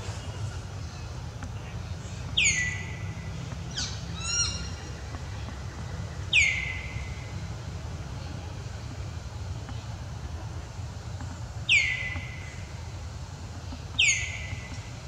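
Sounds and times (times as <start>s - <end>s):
steady low hum: 0.0s - 15.0s
sharp bird calls: 2.4s - 3.1s, 3.7s - 4.9s, 6.3s - 7.2s, 11.7s - 12.6s, 14.0s - 14.7s.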